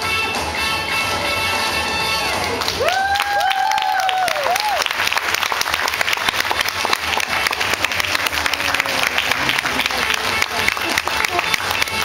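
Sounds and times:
audience applauding: 2.5s - 12.0s.

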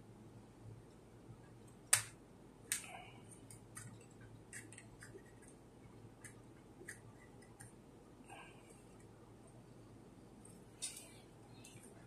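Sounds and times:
sharp plastic snap: 1.9s - 2.9s.

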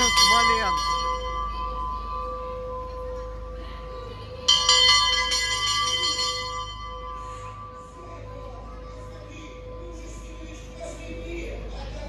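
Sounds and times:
bells ringing: 0.0s - 12.0s.

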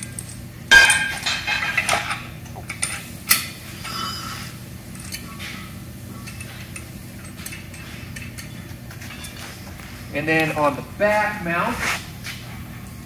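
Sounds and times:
steady low hum: 0.0s - 13.0s
metal parts clinking and knocking: 6.3s - 9.5s.

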